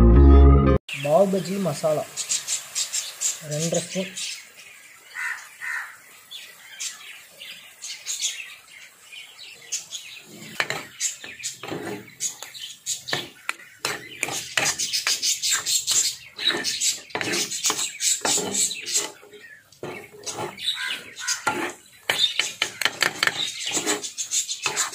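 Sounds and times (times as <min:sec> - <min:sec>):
faint birds chirping: 0:00.9 - 0:24.9
metal spatulas scraping a griddle: 0:10.2 - 0:12.4, 0:13.1 - 0:24.9.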